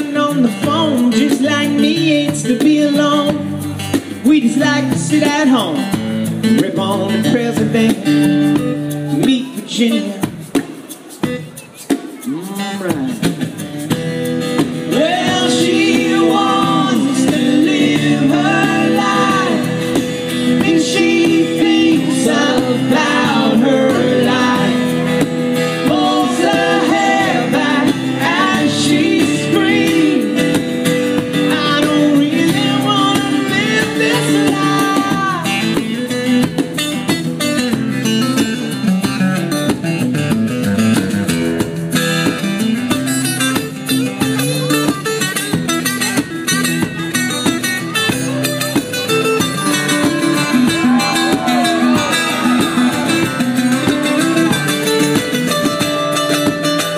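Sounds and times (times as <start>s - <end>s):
man singing: 0.0s - 10.5s, 14.7s - 36.4s
acoustic guitar: 0.0s - 56.9s.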